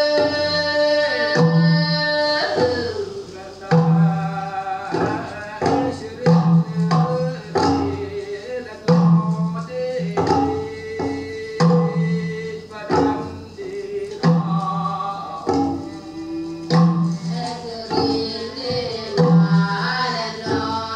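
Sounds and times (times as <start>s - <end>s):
healer and chorus singing: 0.0s - 20.9s
bamboo tubes stamping beat: 5.0s - 8.2s, 8.9s - 20.9s.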